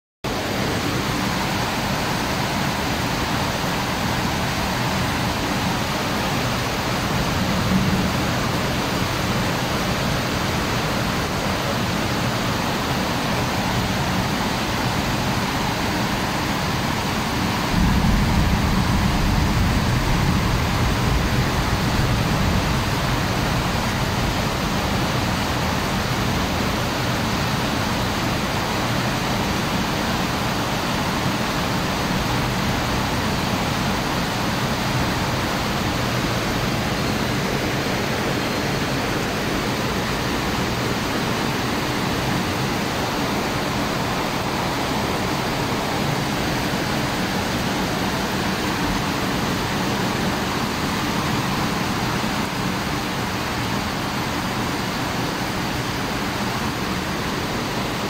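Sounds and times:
steady rain: 0.2 - 58.0
low rumble: 17.7 - 26.2.

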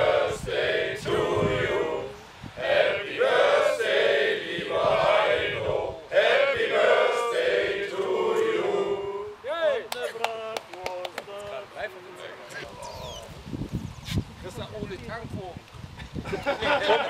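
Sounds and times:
group singing in chorus: 0.0 - 9.4.

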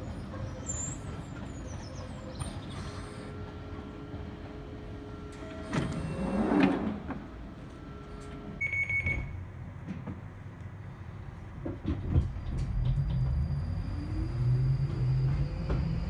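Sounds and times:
train doors shutting: 0.0 - 10.4, 11.5 - 16.0
short high beep: 8.6 - 9.3.

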